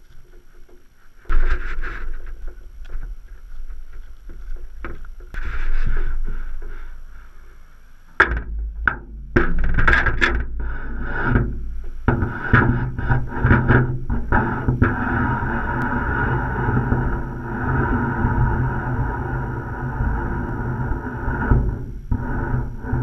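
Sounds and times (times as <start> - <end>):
wind rumbling on microphone: 0.0 - 23.0.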